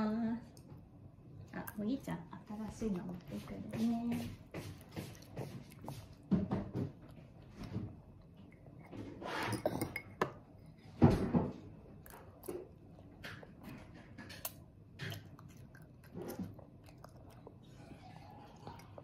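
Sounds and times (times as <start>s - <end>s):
child chewing and slurping: 4.2s - 11.0s, 11.7s - 19.0s
fork scraping against a bowl: 9.0s - 10.1s.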